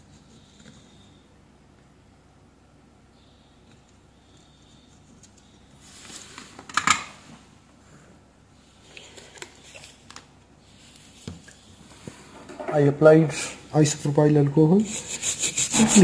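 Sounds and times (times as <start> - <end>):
desoldering braid scraping: 15.1 - 16.0.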